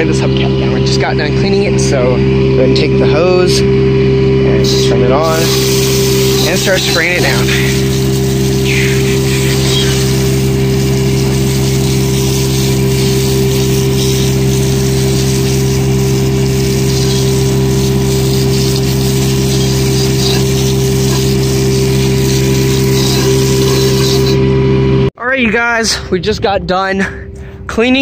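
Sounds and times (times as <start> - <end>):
steady mechanical hum: 0.0 - 28.0
hose spraying water: 4.6 - 24.5.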